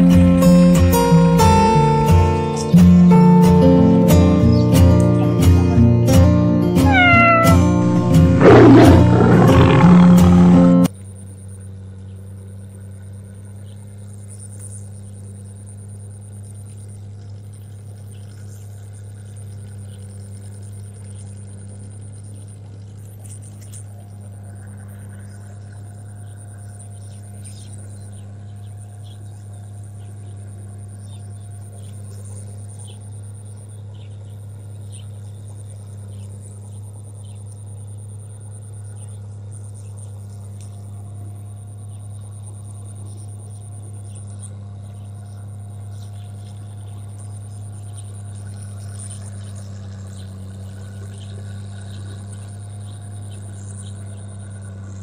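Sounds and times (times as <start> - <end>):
low machine drone: 0.0 - 55.0
faint bird chirps: 6.8 - 10.8, 23.2 - 40.9.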